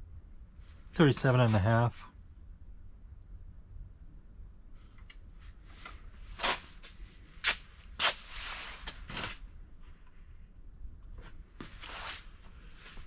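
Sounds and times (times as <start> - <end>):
short rustle: 4.8 - 9.4, 11.2 - 13.0.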